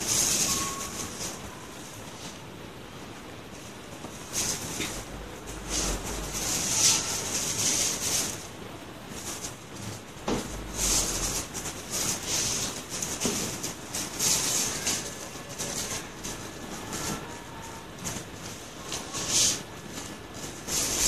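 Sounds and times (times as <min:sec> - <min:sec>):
squeegee swishing across glass: 0:04.2 - 0:08.5.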